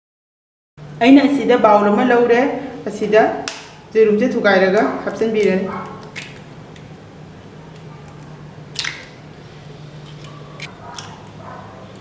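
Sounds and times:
egg cracking on bowl rim: 5.4 - 6.9, 7.7 - 9.2.

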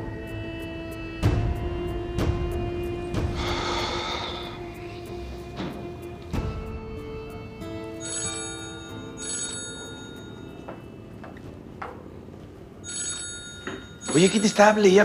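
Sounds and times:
soft background music: 0.0 - 15.0
phone ringtone chiming: 8.0 - 10.8, 12.8 - 15.0.

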